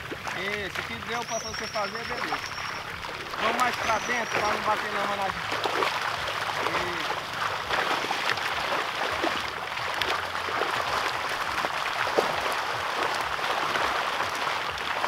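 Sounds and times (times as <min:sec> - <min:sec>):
fish splashing in water: 0:00.0 - 0:15.0
sharp water slap: 0:05.2 - 0:15.0.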